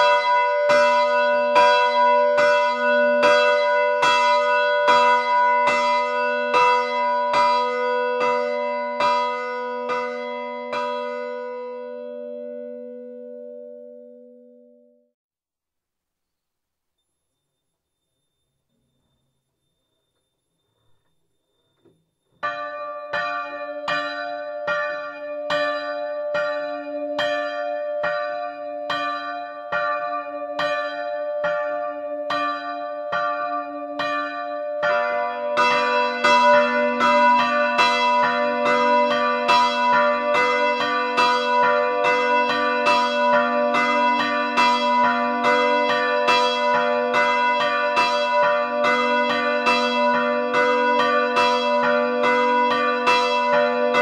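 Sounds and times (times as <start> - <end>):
larger lower church bell ringing: 0.0 - 15.1, 22.4 - 54.0
smaller church bell ringing: 0.0 - 15.1, 22.4 - 54.0.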